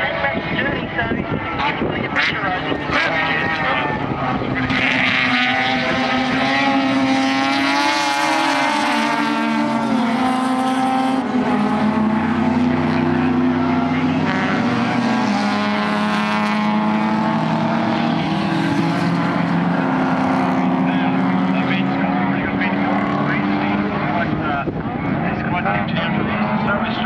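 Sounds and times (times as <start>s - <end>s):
race car engines screaming: 0.0s - 27.0s.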